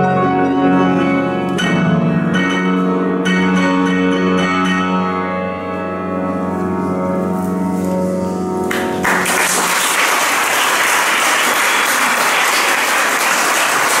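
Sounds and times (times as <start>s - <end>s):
keyboard chord: 0.0s - 9.8s
audience applauding: 8.7s - 14.0s.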